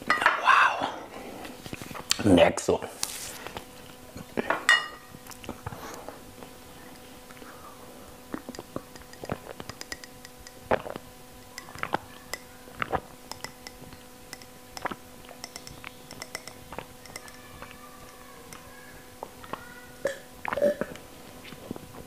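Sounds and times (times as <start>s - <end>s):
faint steady hum: 0.0s - 22.0s
wet swallowing: 8.3s - 12.1s, 12.7s - 17.0s, 20.0s - 21.0s
mouth clicks: 8.3s - 18.7s.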